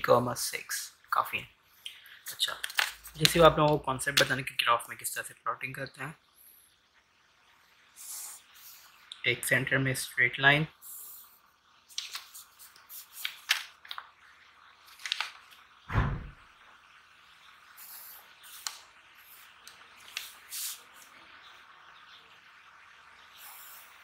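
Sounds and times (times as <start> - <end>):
low thump: 15.9 - 16.4.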